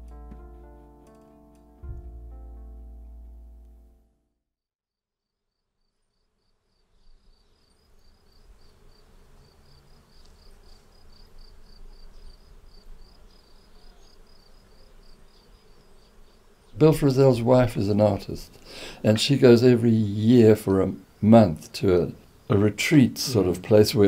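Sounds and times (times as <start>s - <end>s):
cricket chirping: 5.5s - 16.7s.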